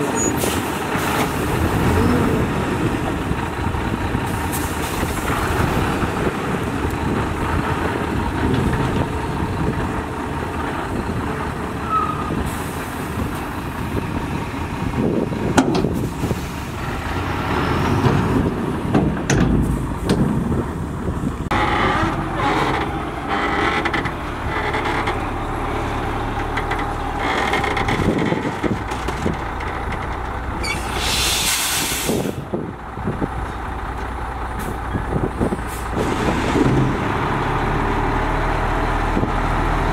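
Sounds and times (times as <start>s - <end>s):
diesel dump trucks running: 0.0s - 39.9s
truck unloading dirt: 0.0s - 39.9s
loud hiss of air: 30.7s - 32.4s.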